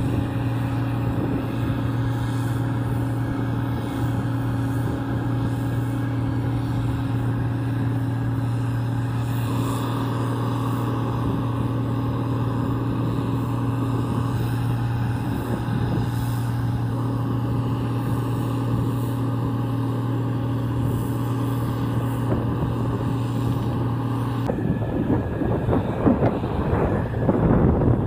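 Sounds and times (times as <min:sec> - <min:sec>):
auger unloading grain: 0:00.0 - 0:28.0
combine harvester droning: 0:00.0 - 0:28.0
wind buffeting microphone: 0:00.0 - 0:28.0.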